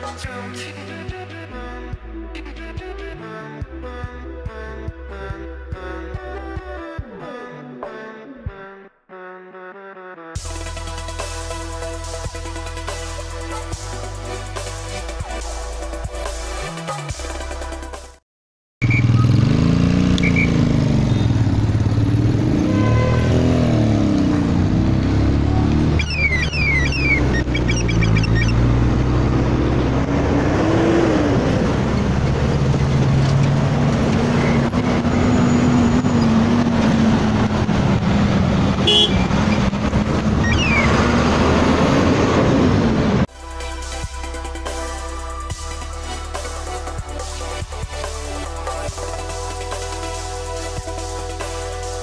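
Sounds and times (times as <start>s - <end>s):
car engines revving: 18.8s - 43.3s
road noise rushing: 18.8s - 43.3s.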